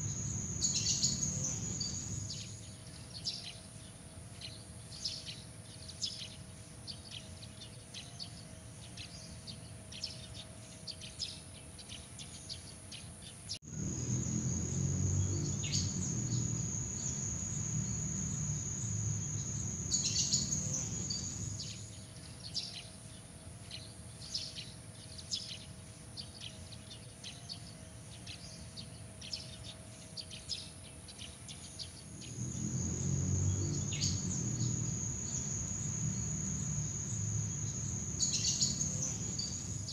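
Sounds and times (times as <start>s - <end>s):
birds chirping: 0.0s - 2.7s, 13.6s - 22.0s, 32.1s - 39.9s
insects trilling: 0.0s - 2.7s, 13.6s - 22.0s, 32.1s - 39.9s.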